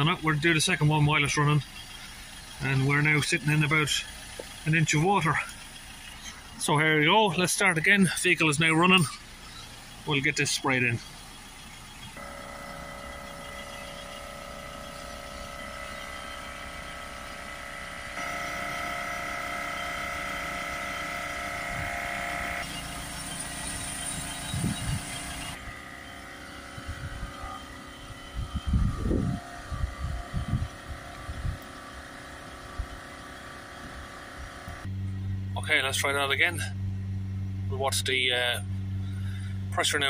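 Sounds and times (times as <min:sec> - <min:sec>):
diesel engine idling: 0:00.0 - 0:40.0.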